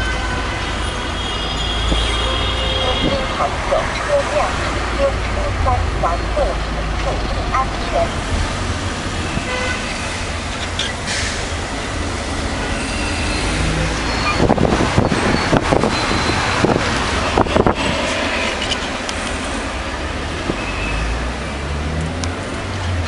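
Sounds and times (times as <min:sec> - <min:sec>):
car engine and road rumble: 0:00.0 - 0:23.0.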